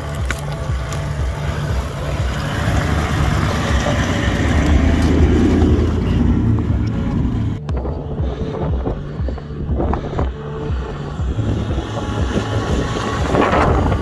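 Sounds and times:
tyres crunching on stones: 0:00.0 - 0:07.9
vehicle engine running slowly: 0:00.0 - 0:14.0.

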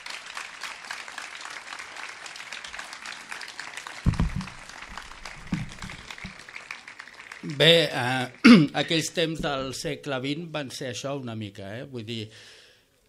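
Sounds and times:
audience clapping: 0:00.0 - 0:09.8
thumps on microphone: 0:04.1 - 0:06.4.

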